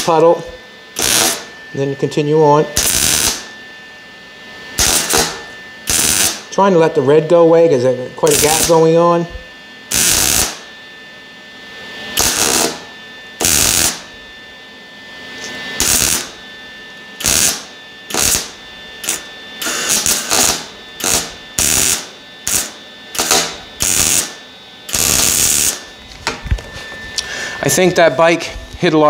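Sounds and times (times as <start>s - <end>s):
welder arc crackle bursts: 0.0s - 0.4s, 1.0s - 1.5s, 2.7s - 3.5s, 4.8s - 6.8s, 8.2s - 9.0s, 9.9s - 10.7s, 12.1s - 14.2s, 15.8s - 16.4s, 17.2s - 25.9s.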